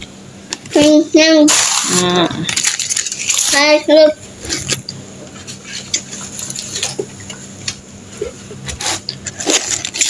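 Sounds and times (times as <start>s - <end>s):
low steady hum: 0.0s - 10.0s
paper and plastic bag rustling: 1.5s - 3.9s.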